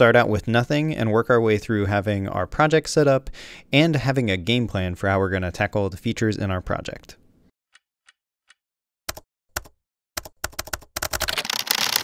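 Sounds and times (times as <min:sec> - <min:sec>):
keyboard typing: 0:09.1 - 0:12.0.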